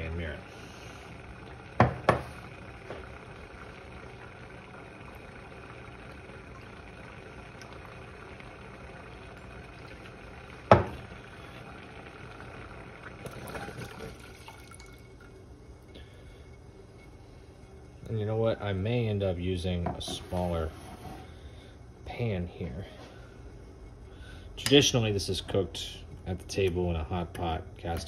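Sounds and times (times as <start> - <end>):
steady hiss: 0.0 - 13.9
sauce pouring: 0.5 - 15.4.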